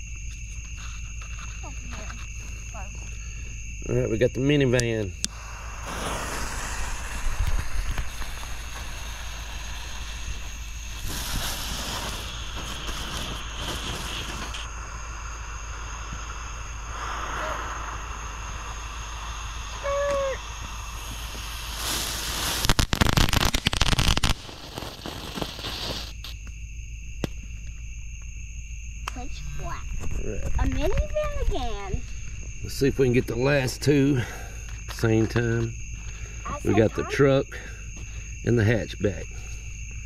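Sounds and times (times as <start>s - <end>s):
firework fountain hissing: 5.0s - 26.4s, 32.7s - 34.9s, 36.1s - 39.6s
sharp pop: 5.2s - 8.9s, 27.2s - 27.4s.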